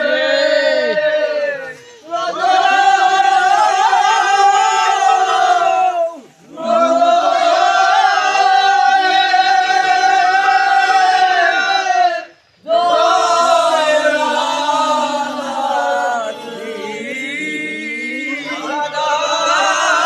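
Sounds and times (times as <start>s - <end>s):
men chanting in unison: 0.0s - 20.0s.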